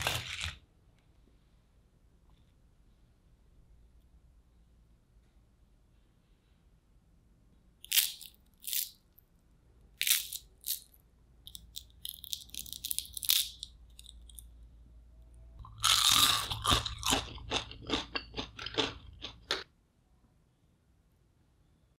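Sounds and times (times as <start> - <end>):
fried potato sticks crunching: 0.0 - 0.6, 7.8 - 9.0, 10.0 - 10.9, 11.5 - 14.5, 15.6 - 19.6.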